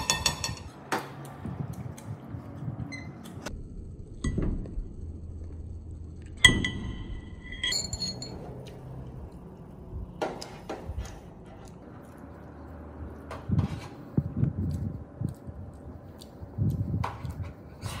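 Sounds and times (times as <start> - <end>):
dishes and cutlery knocking: 0.0 - 0.7
glasses clinking: 6.5 - 8.5.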